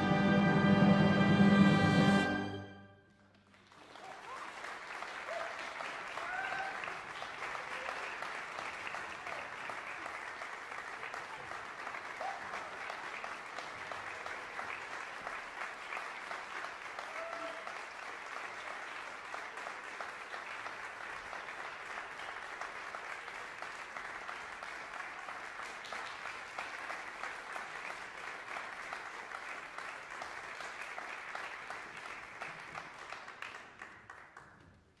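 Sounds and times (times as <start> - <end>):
audience applauding: 3.2 - 35.0.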